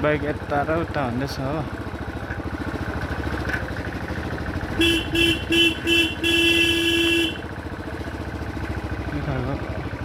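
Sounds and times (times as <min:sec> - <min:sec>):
motorcycle engine running: 0:00.0 - 0:10.0
motorcycle horn beeps: 0:04.7 - 0:07.6.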